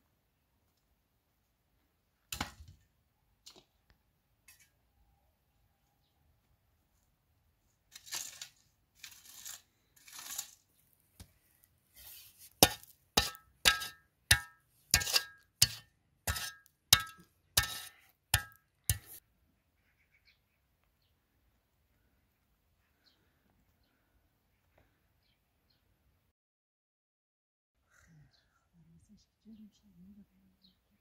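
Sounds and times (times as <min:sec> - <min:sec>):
shovel striking stony ground: 0:07.9 - 0:10.7, 0:12.0 - 0:19.2
shovel scraping earth: 0:07.9 - 0:10.9, 0:11.9 - 0:19.2.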